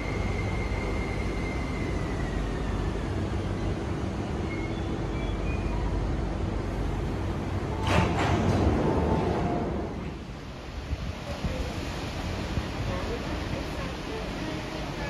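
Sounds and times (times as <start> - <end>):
train rolling and braking: 0.0 - 15.0.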